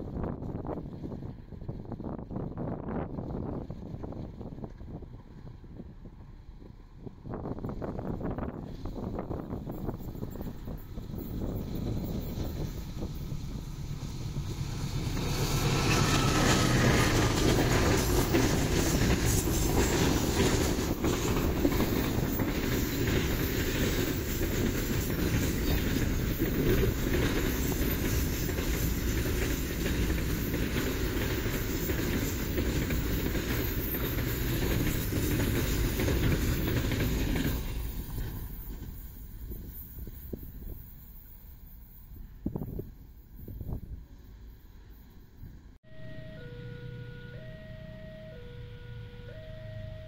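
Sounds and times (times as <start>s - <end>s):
train wheels rumbling on rail: 0.0s - 45.9s
wheels clacking over rail joints: 8.6s - 39.2s.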